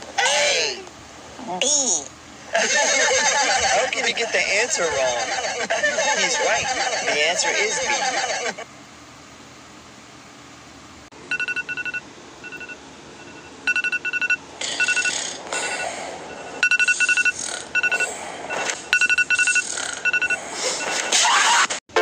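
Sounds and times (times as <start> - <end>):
electronic alarm beeping: 11.3 - 21.1
harsh noise bursts: 14.6 - 22.0.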